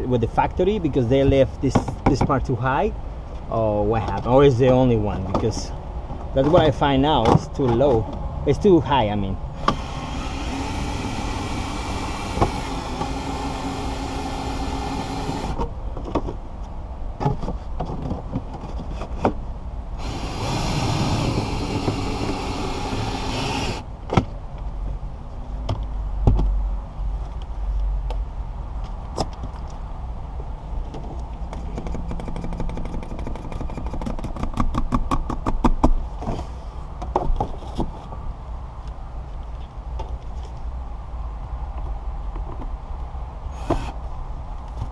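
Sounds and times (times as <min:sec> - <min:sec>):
handling clicks and knocks: 0:03.4 - 0:08.2, 0:30.9 - 0:36.4
cordless power cutter running: 0:09.6 - 0:15.6, 0:20.0 - 0:23.8.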